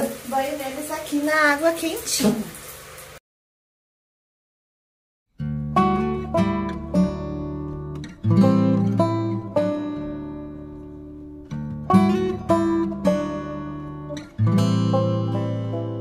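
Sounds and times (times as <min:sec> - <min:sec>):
acoustic guitar chords: 0:05.4 - 0:16.0.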